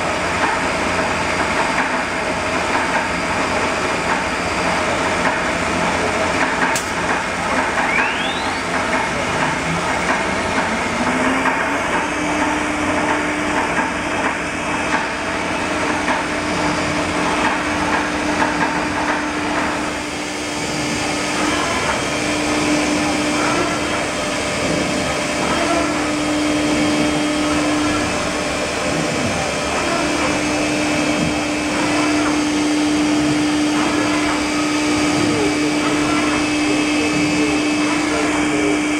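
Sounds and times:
cnc machine noise: 0:00.0 - 0:38.9
spindle whine: 0:07.4 - 0:13.8.

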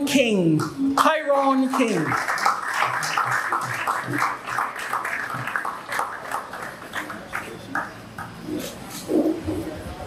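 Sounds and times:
audience applauding: 0:01.0 - 0:08.4.

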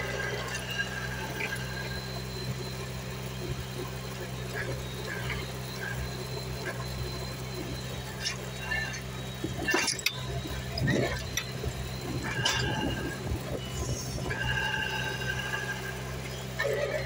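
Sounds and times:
drilling rig machinery humming: 0:00.0 - 0:17.0
pitched squeal: 0:08.0 - 0:17.0.

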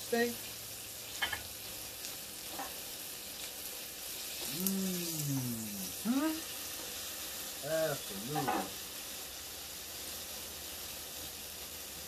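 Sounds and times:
steak sizzling in pan: 0:00.0 - 0:12.0
person's wordless voice: 0:04.5 - 0:06.4.

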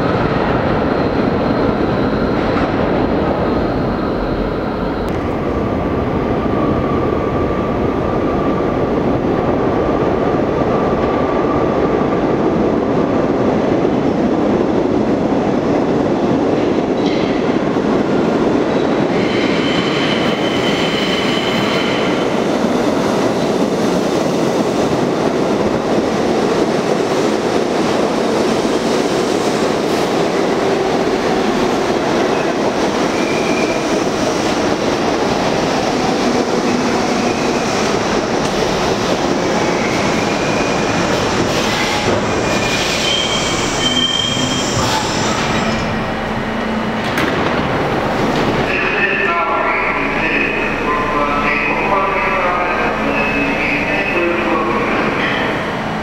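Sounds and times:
subway train wheels rumbling: 0:00.0 - 0:56.0
high wheel squeal: 0:41.7 - 0:46.0.

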